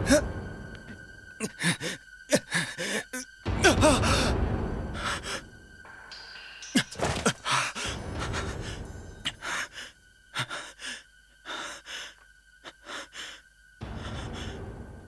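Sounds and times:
man panting heavily: 1.4s - 3.2s, 7.3s - 14.7s.

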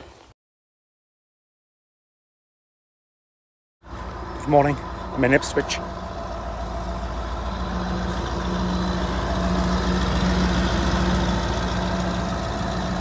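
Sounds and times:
large vehicle engine droning: 3.8s - 13.0s.

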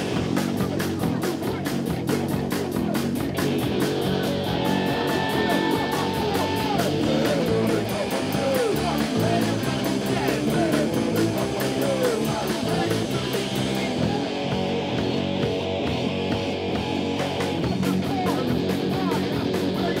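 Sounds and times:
cymbals struck on fast beat: 0.0s - 14.1s
punk rock band playing live: 0.0s - 20.0s.

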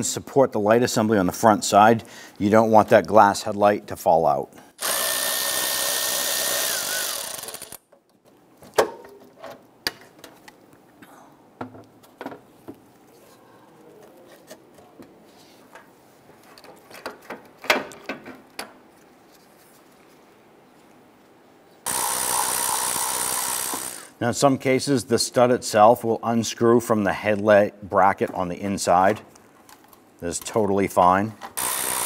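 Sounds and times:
cordless ratchet whining: 4.8s - 7.8s, 21.9s - 24.2s, 31.6s - 32.0s.

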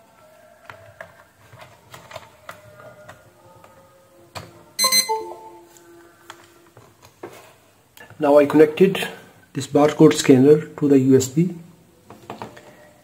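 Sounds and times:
faint background music: 0.0s - 13.0s
low steady electronic tones: 4.8s - 5.7s
short sharp electronic beep: 4.8s - 5.7s.

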